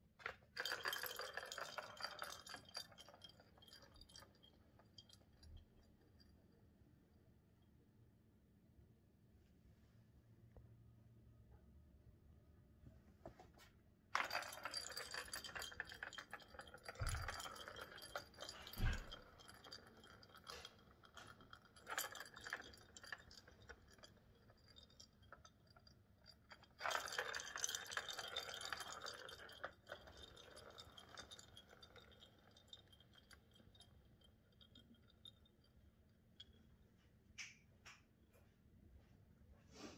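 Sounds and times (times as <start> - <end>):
plastic ball rolling and rattling: 0.2 - 6.6, 14.1 - 37.6.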